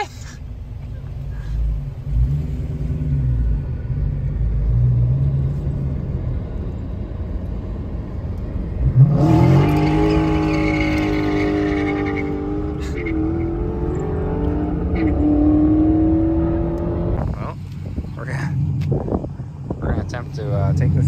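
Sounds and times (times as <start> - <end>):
car engine revving: 1.5 - 21.0.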